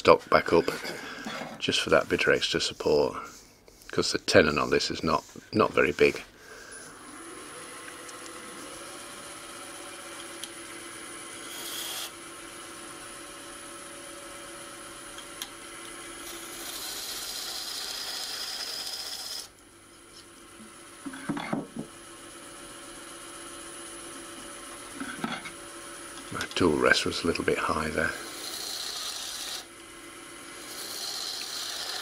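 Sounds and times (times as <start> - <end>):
turning tool cutting wood: 0.0 - 6.2, 6.9 - 19.6, 20.9 - 32.0
wood lathe running: 6.9 - 19.5, 21.9 - 32.0.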